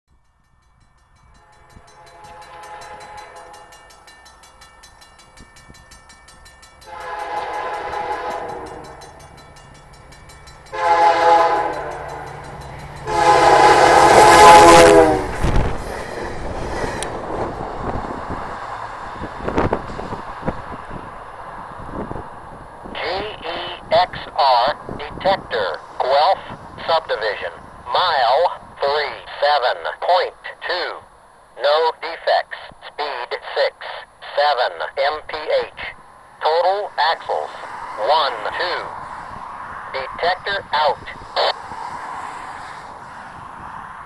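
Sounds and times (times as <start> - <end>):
train rumbling past: 0.1 - 29.3, 35.7 - 44.0
train horn blasts: 1.3 - 4.0, 6.8 - 9.2, 10.7 - 15.6.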